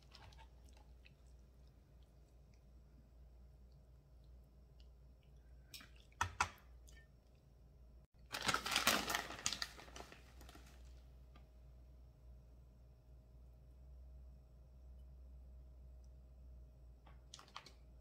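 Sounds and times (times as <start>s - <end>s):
plastic bag crinkling: 8.2s - 11.0s.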